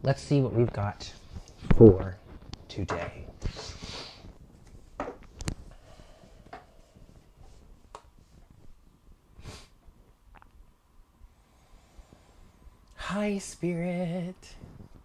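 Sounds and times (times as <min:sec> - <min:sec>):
breaths through the nose: 0:03.4 - 0:04.4, 0:09.4 - 0:09.8, 0:11.3 - 0:12.8.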